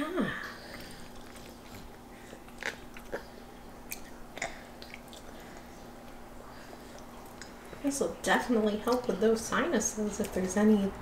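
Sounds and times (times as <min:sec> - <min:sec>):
toddlers chewing wetly: 0:00.4 - 0:07.9.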